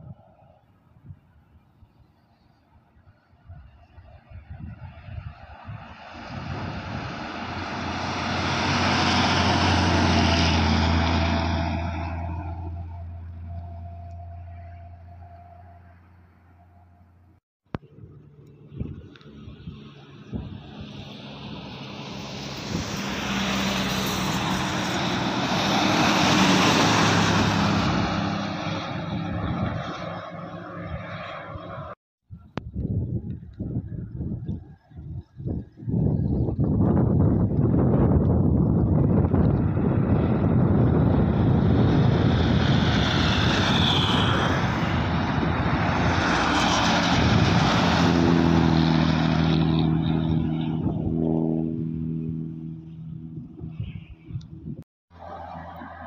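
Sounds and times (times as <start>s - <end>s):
bus driving past: 4.8s - 32.0s, 38.9s - 53.6s, 55.2s - 56.0s.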